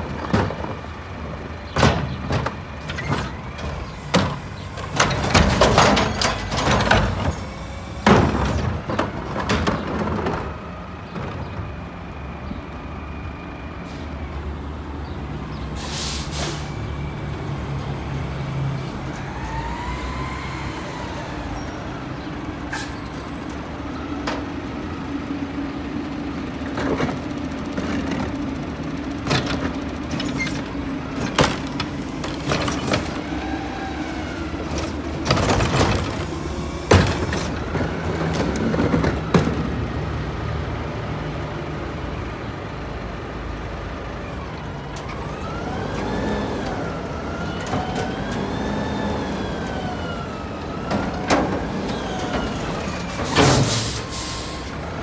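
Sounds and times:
knocks of cart: 1.7s - 3.3s
hiss of air: 15.8s - 16.7s
truck diesel engine running: 15.8s - 55.0s.

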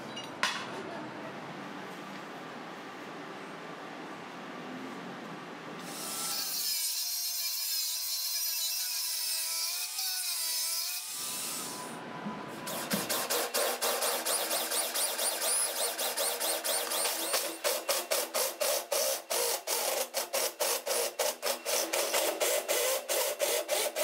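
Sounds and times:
electric drill whining: 12.7s - 24.0s
saw squealing: 12.7s - 24.0s.

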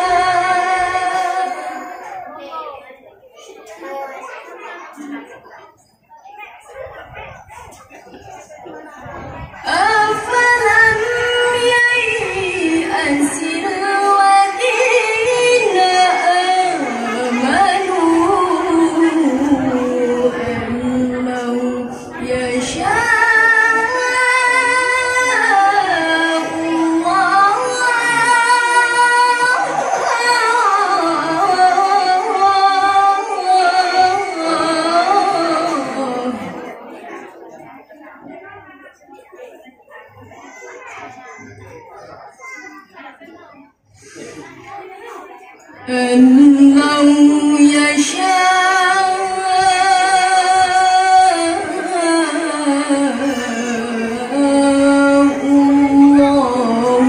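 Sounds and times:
woman reciting melodically: 0.0s - 2.6s, 9.4s - 37.3s, 45.4s - 57.0s.

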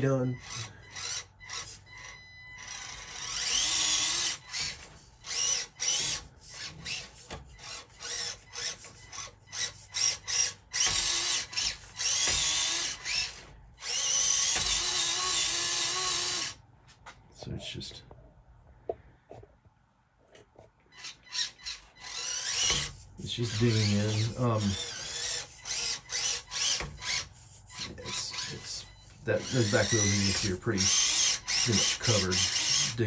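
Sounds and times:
small electric motor whining: 0.0s - 16.6s, 20.9s - 33.0s.

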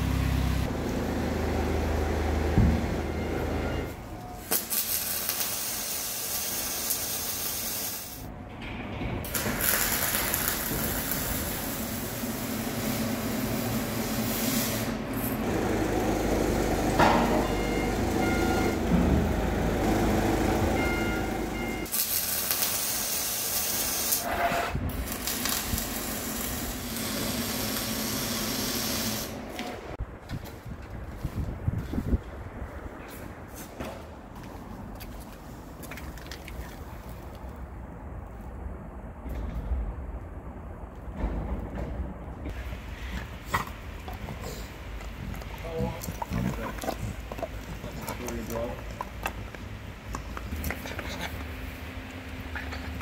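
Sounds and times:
welding arc hissing and crackling: 4.4s - 8.3s, 9.3s - 15.0s, 21.8s - 24.3s, 24.9s - 29.4s.

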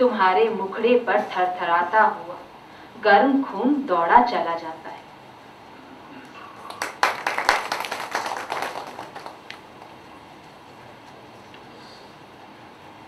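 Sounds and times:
audience hand clapping: 6.6s - 10.0s.

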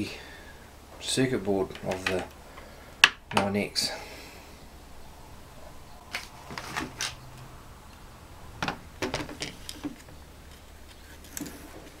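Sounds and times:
low steady hum: 0.0s - 12.0s
handling clicks and knocks: 1.7s - 2.4s, 8.6s - 12.0s.

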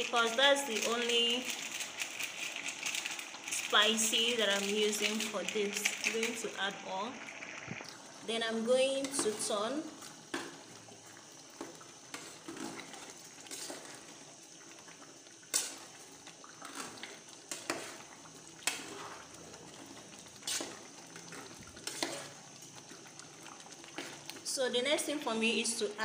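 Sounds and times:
spoon scraping through stew: 20.3s - 22.4s.

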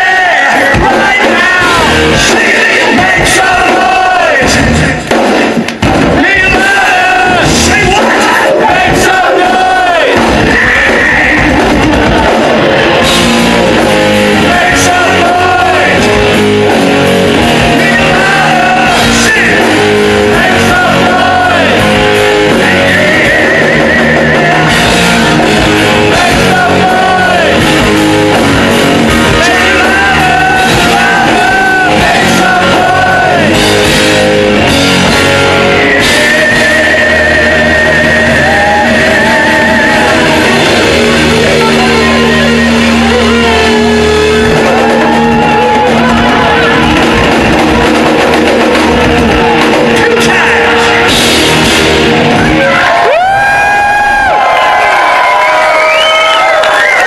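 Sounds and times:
man singing: 0.0s - 5.1s, 6.1s - 13.1s, 14.3s - 16.6s, 17.4s - 28.0s, 29.1s - 34.0s, 34.9s - 45.8s
bass guitar: 0.0s - 57.0s
drums: 0.0s - 57.0s
electric guitar: 0.0s - 57.0s.

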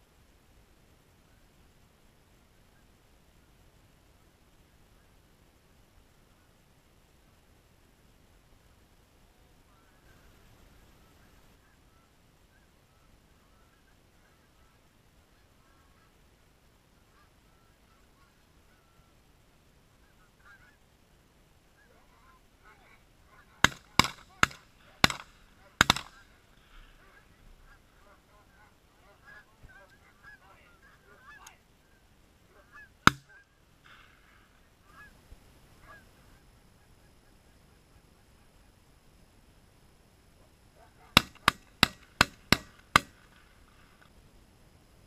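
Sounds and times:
geese honking: 9.7s - 19.2s, 19.9s - 21.0s, 21.7s - 35.2s, 35.8s - 38.4s, 40.8s - 44.0s
shotgun blasts: 23.6s - 27.2s, 33.0s - 34.2s, 41.2s - 43.9s.

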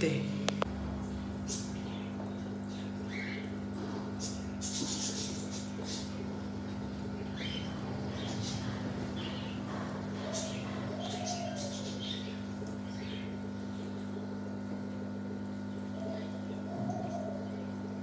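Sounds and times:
steady low hum: 0.0s - 18.0s
small birds chirping: 1.2s - 13.9s.

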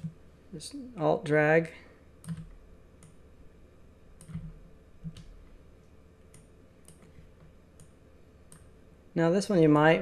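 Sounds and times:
mouse and keyboard clicks: 4.2s - 5.5s.

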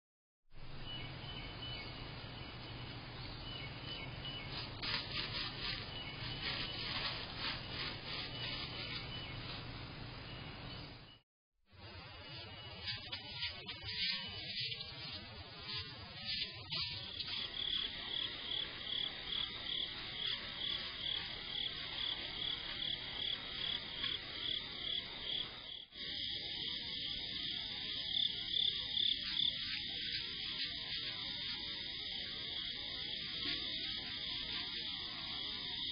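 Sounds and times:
steady hiss and low hum: 0.6s - 11.1s, 11.7s - 35.9s
insect chirping: 12.0s - 35.9s
rapid high-pitched animal pulses: 12.3s - 35.9s.

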